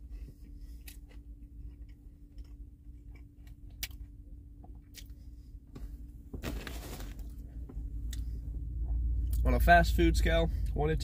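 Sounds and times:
man chewing food: 0.0s - 5.6s
low hum inside car: 0.0s - 11.0s.

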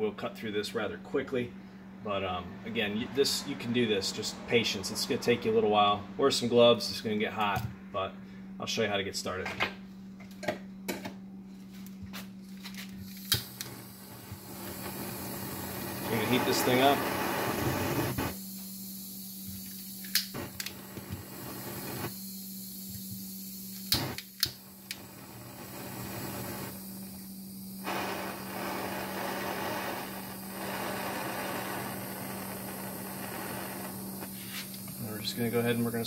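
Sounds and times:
torch flame hissing: 13.0s - 36.0s.

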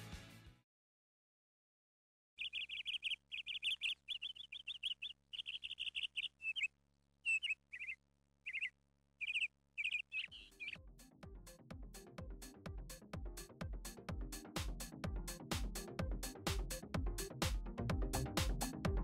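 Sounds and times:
small birds chirping: 2.4s - 10.9s.

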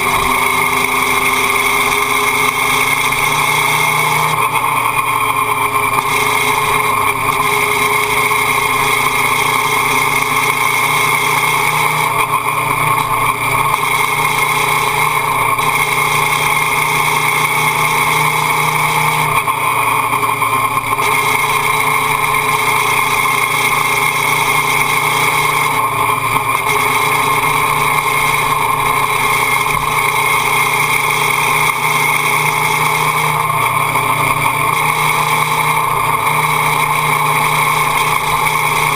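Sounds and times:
motorcycle engine running: 0.0s - 38.9s
wind and road noise: 0.0s - 38.9s.

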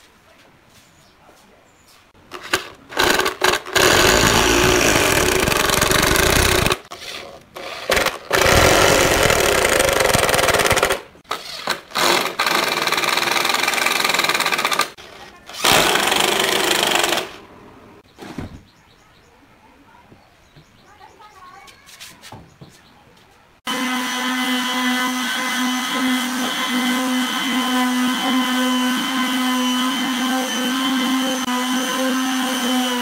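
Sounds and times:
impact driver hammering screws: 2.4s - 17.4s.

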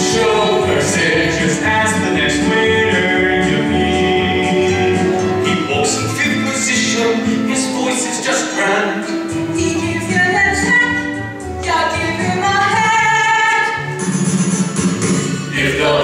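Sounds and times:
cast singing a show tune: 0.0s - 11.2s
live musical accompaniment: 0.0s - 16.0s
woman singing: 9.6s - 13.8s.

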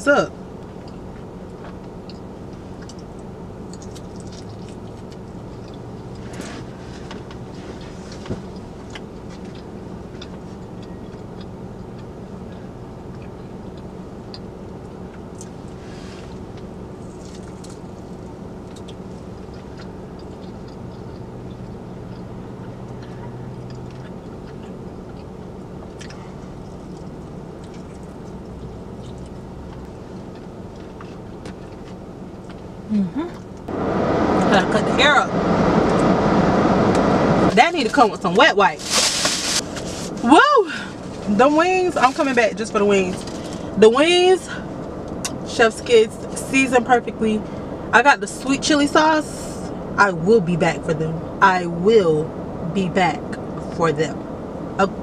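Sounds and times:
car engine hum: 0.0s - 55.0s
chewing and eating: 0.7s - 32.7s
takeout container rustling: 38.8s - 40.2s.

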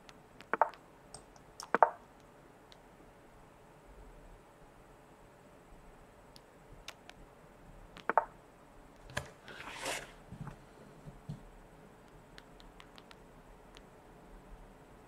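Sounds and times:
small sharp clicks and taps: 0.0s - 2.8s, 6.3s - 7.2s, 8.0s - 8.3s, 12.0s - 13.9s.

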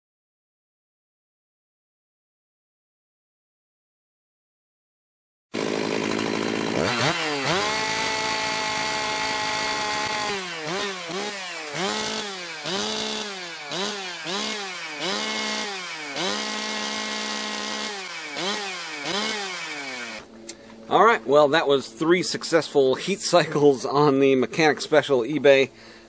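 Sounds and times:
chainsaw revving: 5.6s - 20.3s.

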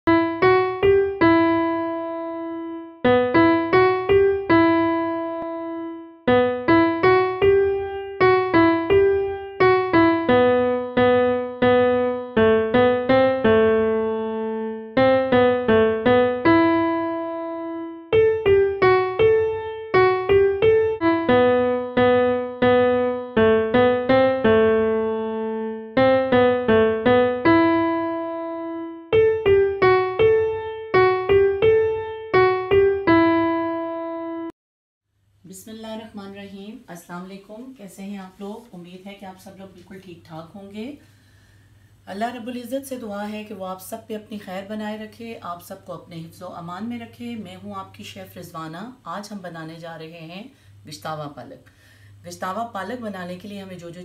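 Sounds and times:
simple piano melody: 0.0s - 34.6s.

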